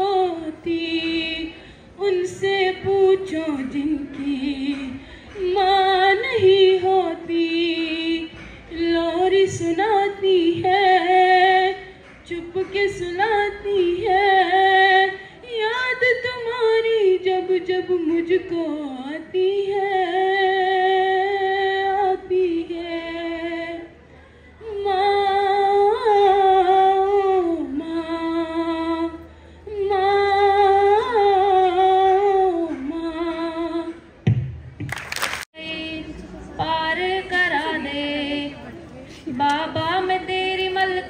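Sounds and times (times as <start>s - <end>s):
girl singing: 0.0s - 23.9s, 24.6s - 34.1s, 35.6s - 38.6s, 39.3s - 41.0s
person singing unaccompanied: 35.6s - 41.0s.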